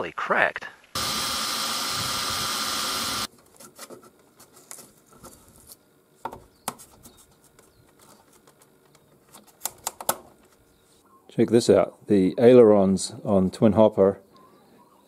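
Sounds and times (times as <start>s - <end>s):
rotary tool cutting at high speed: 1.0s - 3.3s.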